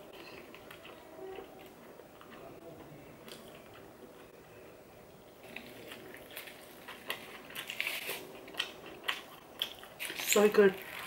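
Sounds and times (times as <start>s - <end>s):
close chewing with wet mouth clicks: 5.4s - 11.0s.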